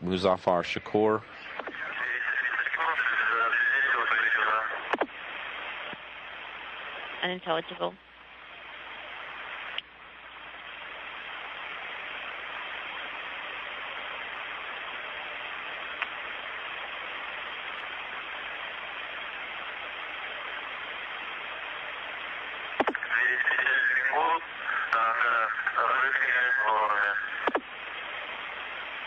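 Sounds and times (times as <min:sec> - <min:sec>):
radio static hiss: 0:00.0 - 0:29.0
radio click: 0:01.4 - 0:06.1, 0:09.5 - 0:09.9, 0:15.9 - 0:16.3, 0:22.6 - 0:27.7.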